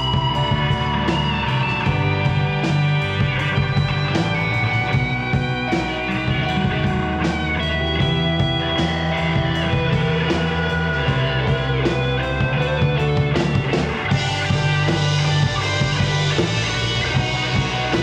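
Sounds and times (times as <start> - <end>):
bass guitar: 0.0 - 18.0
drums keeping a steady beat: 0.0 - 18.0
overdriven electric guitars: 0.0 - 18.0.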